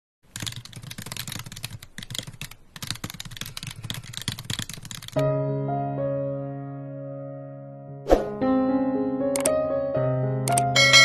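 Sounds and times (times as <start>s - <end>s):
keyboard typing: 0.3s - 5.2s, 10.5s - 10.8s.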